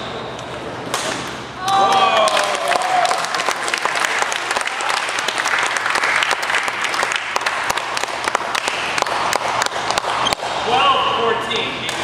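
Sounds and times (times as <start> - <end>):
spectators applauding: 1.7 - 10.1.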